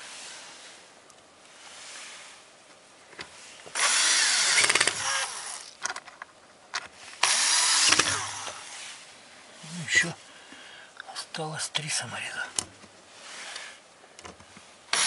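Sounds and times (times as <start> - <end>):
cordless drill driving screws: 3.7 - 5.8, 7.2 - 8.7.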